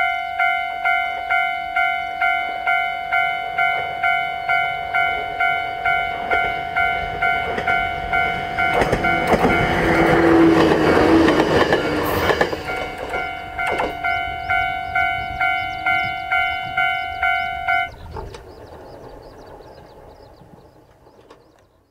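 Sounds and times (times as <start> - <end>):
level crossing bell ringing: 0.0 - 10.5, 12.6 - 18.0
train wheel and rail clatter: 2.2 - 21.9.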